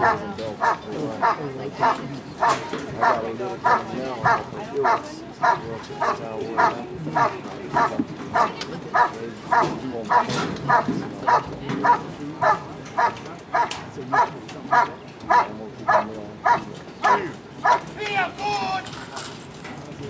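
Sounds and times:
dog barking rhythmically: 0:00.0 - 0:17.9.

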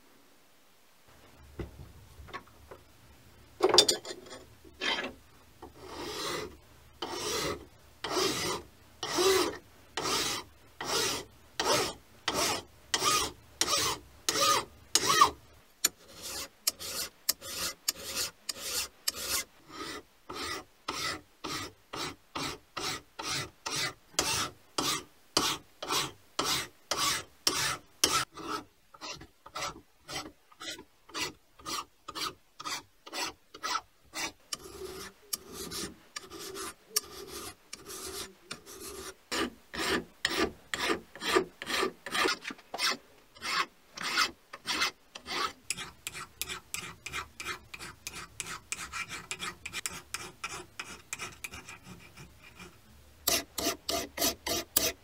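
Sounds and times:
hand file rasping on metal: 0:05.8 - 0:55.0.

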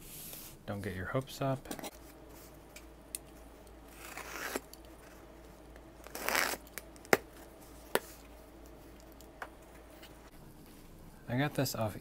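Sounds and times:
cardboard tearing: 0:03.9 - 0:04.7, 0:06.0 - 0:06.7.

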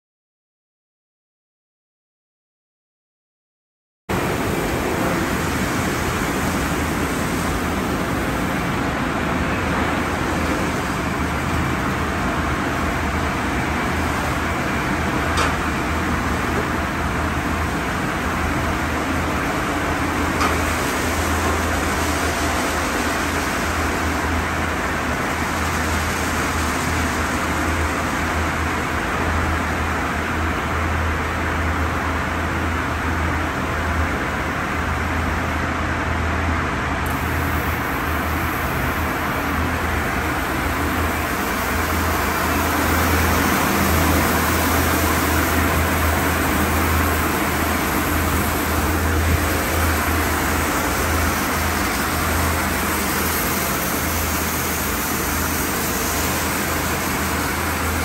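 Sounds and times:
water spray rushing: 0:37.0 - 0:58.0.

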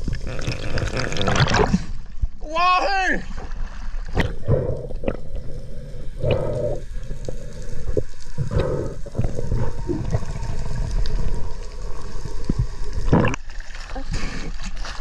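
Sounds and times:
muffled underwater rumble: 0:04.2 - 0:13.4.

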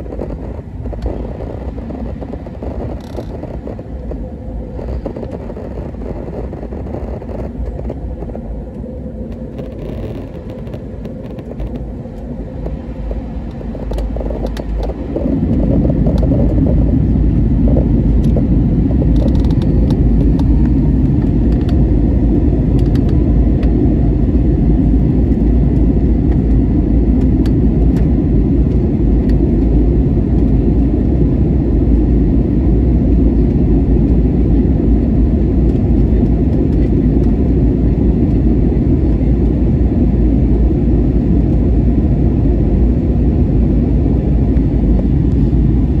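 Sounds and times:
rushing air: 0:00.0 - 0:24.3
jet engines rumbling in cabin: 0:00.0 - 0:46.0.

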